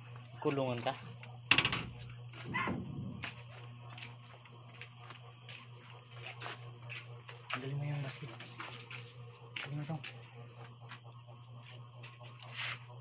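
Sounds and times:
crickets trilling: 0.0s - 13.0s.

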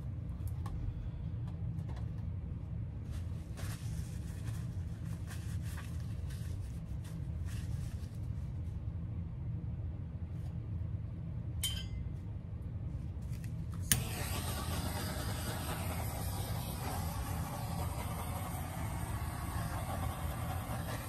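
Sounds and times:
constant low hum: 0.0s - 21.0s
steady rushing hiss: 14.0s - 21.0s.

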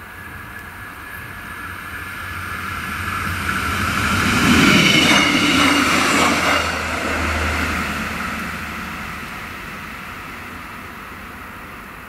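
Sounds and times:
train wheels on rails: 0.0s - 12.0s
diesel engine drone: 5.8s - 12.0s.

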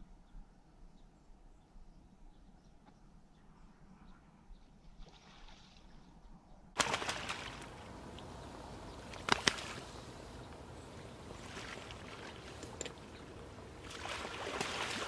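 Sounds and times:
ducks splashing in water: 6.8s - 15.0s
sharp water splashes: 6.8s - 15.0s.

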